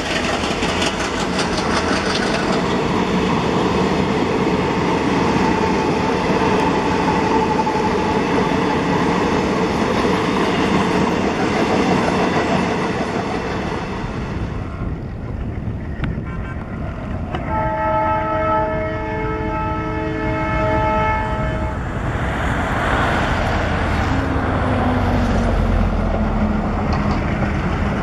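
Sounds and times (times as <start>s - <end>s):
train wheels on jointed track: 0.0s - 18.5s, 19.1s - 28.0s
locomotive horn blast: 16.1s - 21.9s.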